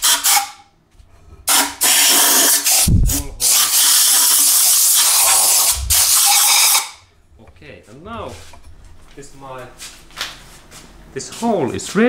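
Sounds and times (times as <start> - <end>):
compressed air blow gun hissing: 1.5 - 6.8.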